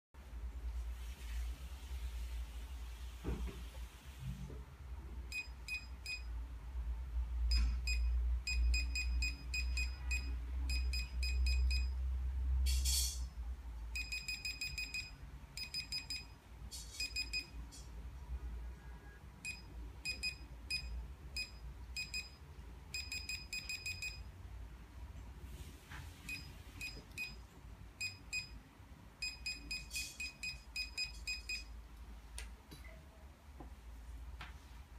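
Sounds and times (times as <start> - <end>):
barcode scanner beeping: 5.3 - 6.3, 7.5 - 11.9, 13.9 - 16.4, 17.0 - 17.6, 19.4 - 24.3, 26.3 - 27.4, 28.0 - 28.6, 29.2 - 31.7.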